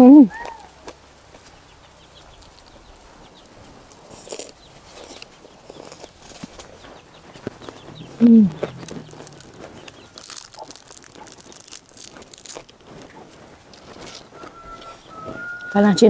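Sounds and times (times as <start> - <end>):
small crackles and crunches: 0.3 - 16.0
voice-like call dropping in pitch: 8.0 - 9.5
fingers breaking dried fried fish: 8.5 - 14.8.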